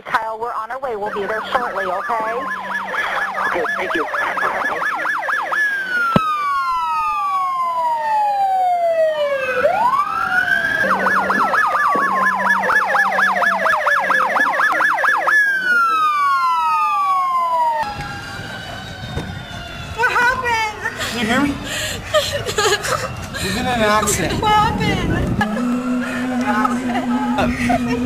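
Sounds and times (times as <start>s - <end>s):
police siren yelp and wail: 1.0s - 28.0s.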